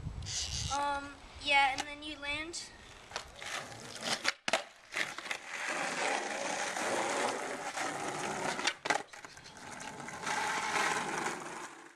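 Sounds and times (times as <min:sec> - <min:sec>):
skateboard wheels rolling on asphalt: 0:02.9 - 0:11.9
skateboard clacks: 0:03.1 - 0:11.9.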